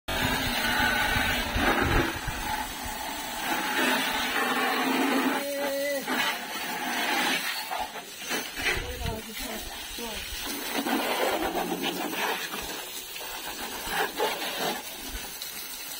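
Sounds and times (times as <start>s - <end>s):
hose spray splashing on stone: 0.1s - 15.9s
short voice-like call: 5.2s - 6.4s.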